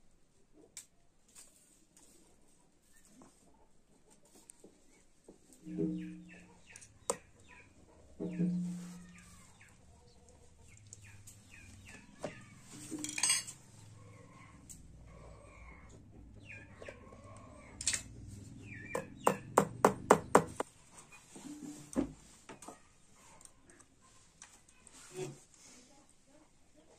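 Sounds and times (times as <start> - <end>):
birds chirping: 5.6 - 13.0, 13.7 - 20.4
small metallic clinks: 12.9 - 13.6.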